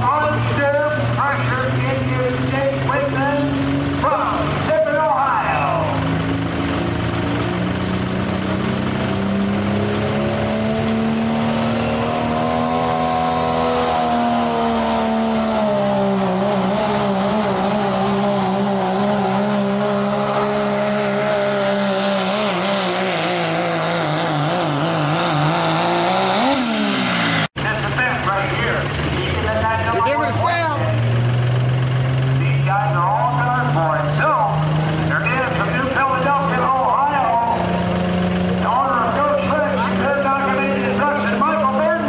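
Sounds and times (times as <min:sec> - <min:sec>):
diesel engine at full throttle: 0:00.0 - 0:42.0
turbo whistle: 0:11.4 - 0:12.7, 0:24.3 - 0:25.7.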